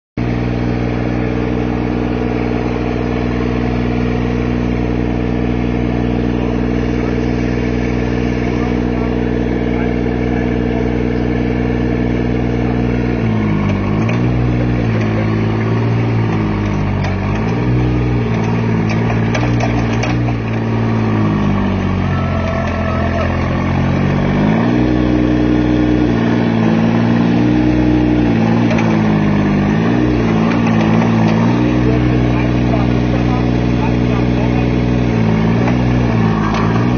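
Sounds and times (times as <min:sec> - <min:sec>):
excavator engine running: 0:00.2 - 0:36.9.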